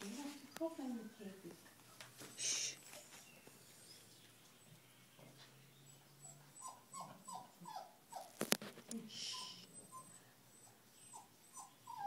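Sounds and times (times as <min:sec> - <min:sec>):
small dog whimpering: 0:06.2 - 0:08.4, 0:09.3 - 0:12.0.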